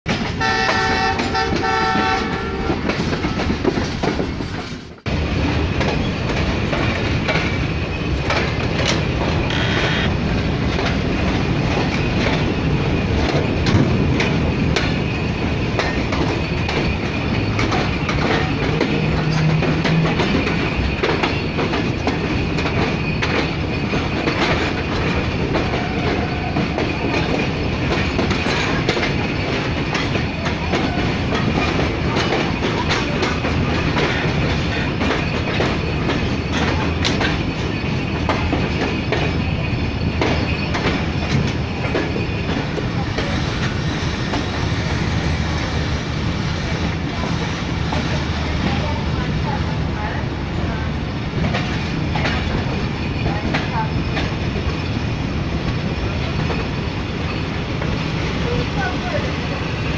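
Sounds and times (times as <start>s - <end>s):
train wheels clattering on rails: 0.1s - 59.9s
horn-like tone: 9.5s - 10.2s.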